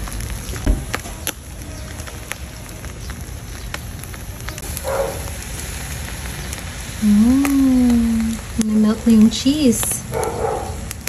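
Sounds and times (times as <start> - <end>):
charcoal fire crackling: 0.0 - 11.0
dull thump: 0.6 - 1.1.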